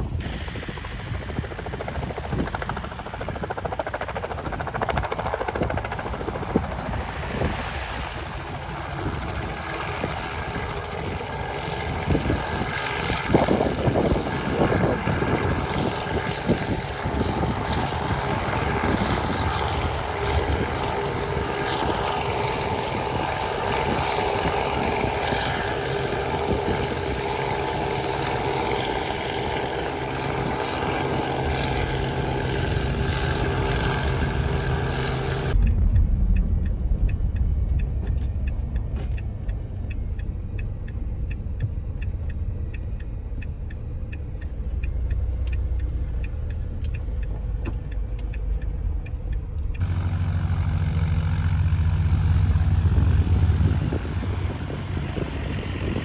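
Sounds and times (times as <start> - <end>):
road noise inside vehicle: 0.0 - 1.5, 5.6 - 14.2, 14.8 - 56.0
helicopter hovering: 0.0 - 56.0
van engine rumble: 0.0 - 56.0.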